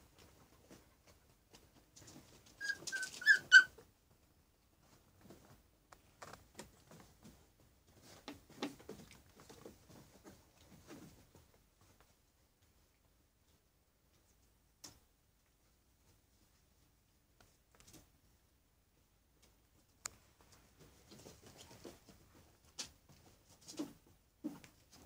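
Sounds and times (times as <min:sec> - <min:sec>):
puppies yelping: 0:02.6 - 0:03.7.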